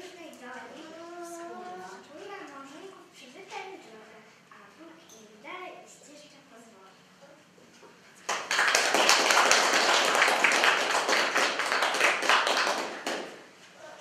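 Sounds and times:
audience clapping: 0:08.2 - 0:13.6.

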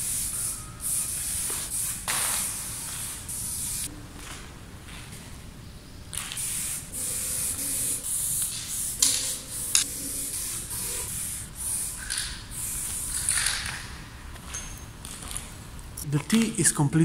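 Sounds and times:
spray paint can hissing: 0:00.0 - 0:03.9, 0:06.1 - 0:14.0.

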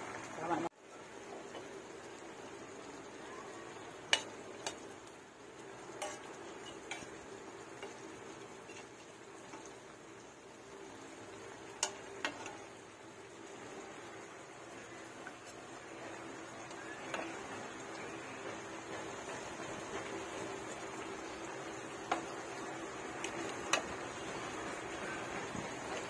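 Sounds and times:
pot simmering: 0:00.0 - 0:26.0
metal spatula scraping a wok: 0:06.0 - 0:07.1.

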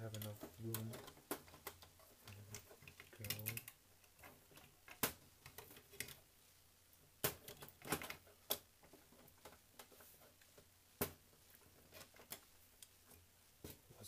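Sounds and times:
metal model parts clicking and knocking: 0:00.0 - 0:06.2.

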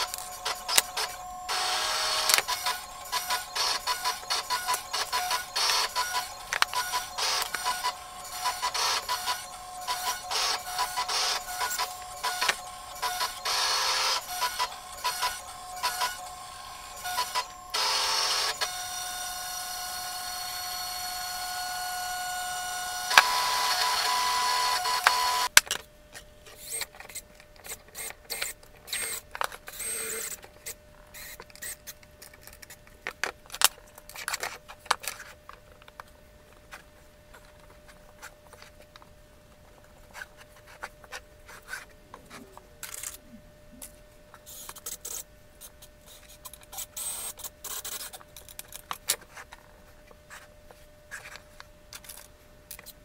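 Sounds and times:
wooden parts and tools clicking: 0:00.0 - 0:18.8
steady whine of held tones: 0:00.0 - 0:26.0.

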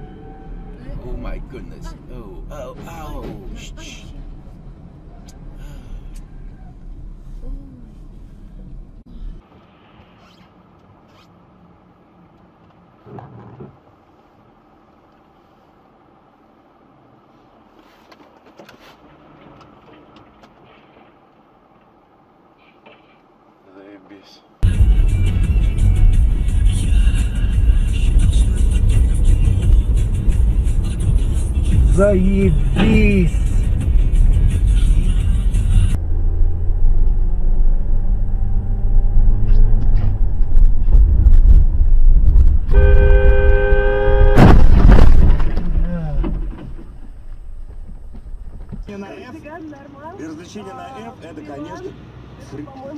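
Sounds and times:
car horn: 0:00.0 - 0:00.8, 0:42.7 - 0:44.8
car engine rumble: 0:00.0 - 0:52.9
tyres on slushy road: 0:09.4 - 0:23.6
loud crash of impact: 0:44.2 - 0:47.7.

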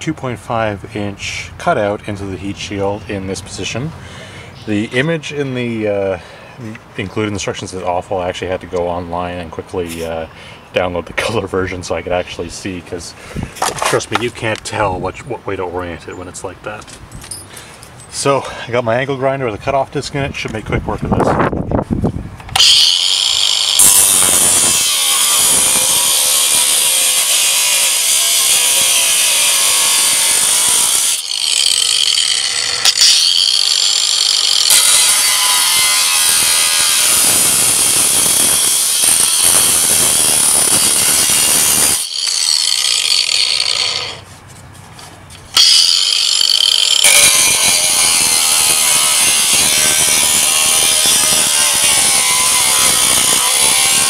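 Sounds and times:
angle grinder cutting metal: 0:22.5 - 0:44.3, 0:45.6 - 0:54.0.

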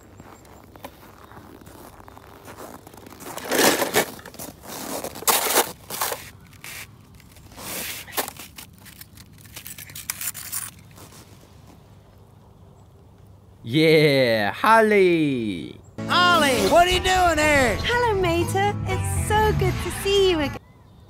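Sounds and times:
footsteps crunching in snow: 0:00.0 - 0:12.0.

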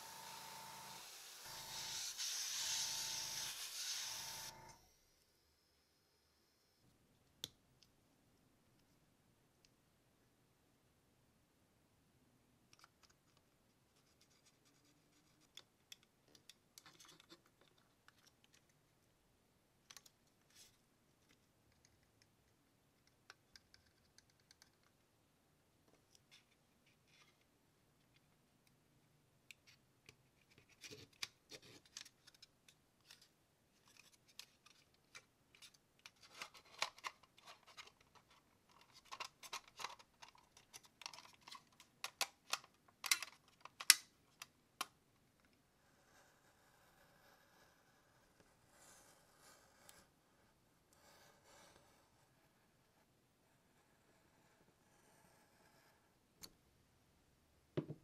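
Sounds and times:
plastic parts clicking and tapping: 0:15.4 - 0:18.8, 0:29.5 - 0:45.0.

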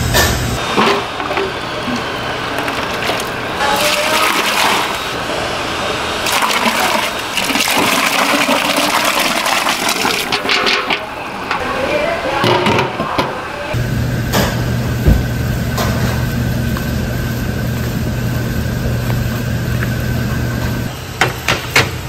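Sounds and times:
soup pouring between pots: 0:01.2 - 0:05.2, 0:06.2 - 0:11.0.

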